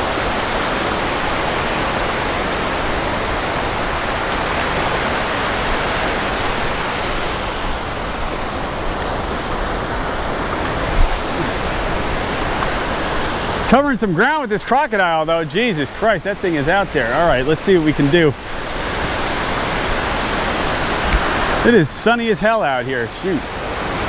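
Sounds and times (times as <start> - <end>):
waves washing up sand: 0.0 - 24.0.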